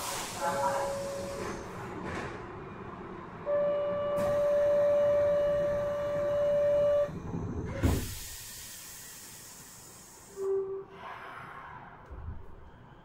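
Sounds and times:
train door buzzer tone: 3.4s - 7.2s.

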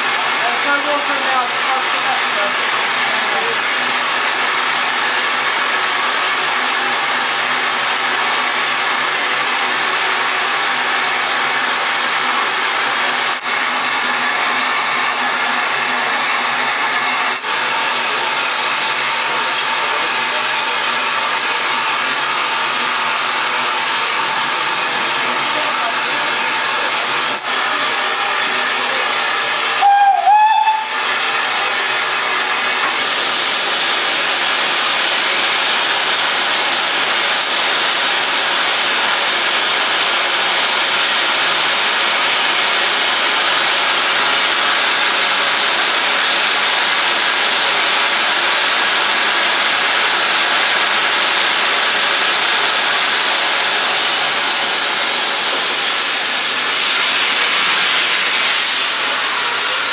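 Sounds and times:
steam locomotive whistle: 29.7s - 31.1s
steam hissing: 32.8s - 59.9s.

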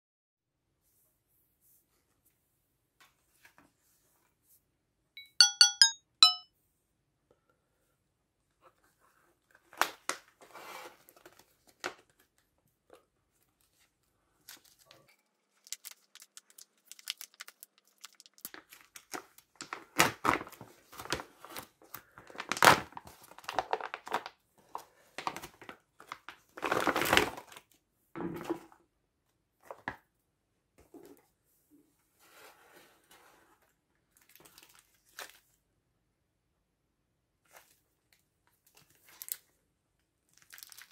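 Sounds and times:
chiming musical tones: 5.2s - 6.4s
plastic pouch crinkling and tearing: 15.4s - 21.2s, 22.2s - 24.3s, 38.8s - 39.5s, 40.3s - 40.9s.

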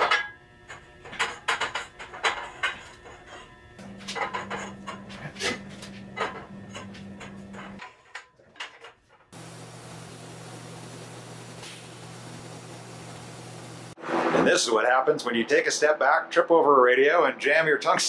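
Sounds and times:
steady low hum: 9.4s - 14.0s.

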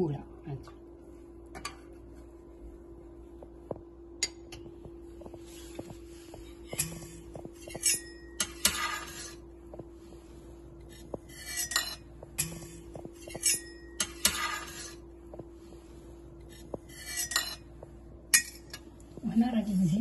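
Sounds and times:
low hum: 0.0s - 20.0s
metal server clinking on plate: 7.6s - 9.3s, 11.5s - 14.9s.

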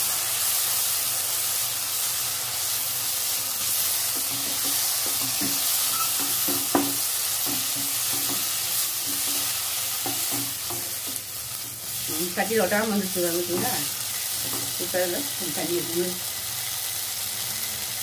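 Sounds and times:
food sizzling in oil: 0.0s - 18.0s
spatula scraping and knocking pan: 4.1s - 14.9s.

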